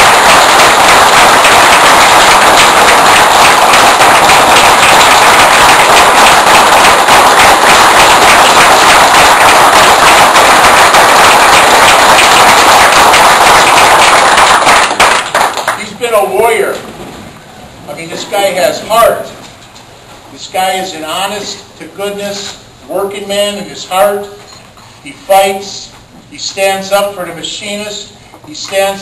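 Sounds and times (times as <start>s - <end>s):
crowd applauding loudly: 0.0s - 15.9s.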